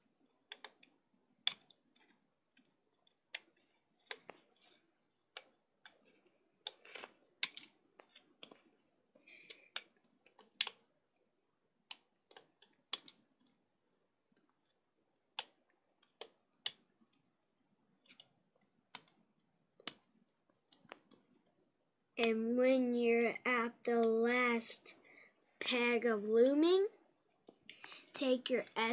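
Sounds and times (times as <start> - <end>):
plastic hook clicking on rubber bands: 0.4 - 8.7, 9.5 - 10.9, 11.8 - 13.6, 14.6 - 17.2, 19.8 - 21.4.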